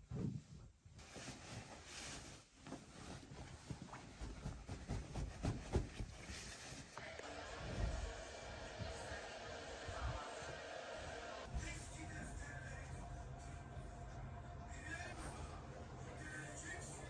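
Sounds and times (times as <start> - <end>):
fabric rustling: 0.0 - 7.1.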